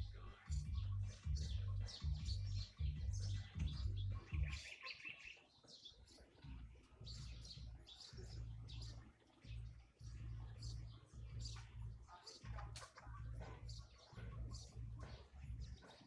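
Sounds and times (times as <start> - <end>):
bird trill: 0.0 - 16.0
nestlings begging: 0.0 - 16.0
songbird chirps: 0.0 - 16.0.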